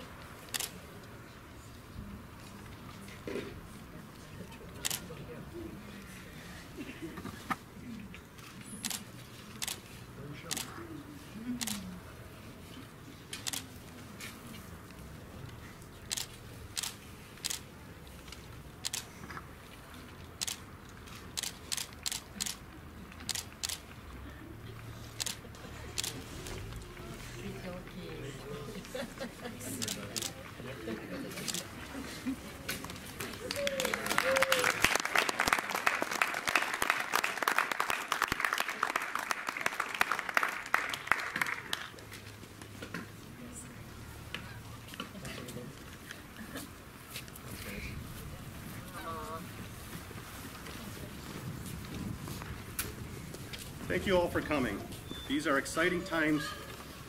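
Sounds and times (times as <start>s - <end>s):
camera shutters clicking: 0.5s - 0.8s, 4.8s - 5.0s, 8.4s - 9.0s, 9.6s - 9.8s, 10.5s - 10.7s, 13.3s - 13.7s, 16.1s - 17.6s, 18.3s - 19.1s, 20.4s - 20.7s, 21.3s - 22.6s, 23.2s - 23.9s, 25.2s - 26.7s, 29.8s - 30.4s, 31.3s - 31.7s
audience applause: 33.1s - 42.0s.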